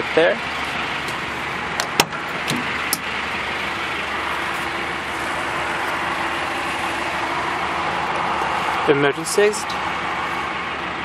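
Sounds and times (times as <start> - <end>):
steady hum: 0.0 - 11.0
vehicle door latch clicking: 1.8 - 3.0.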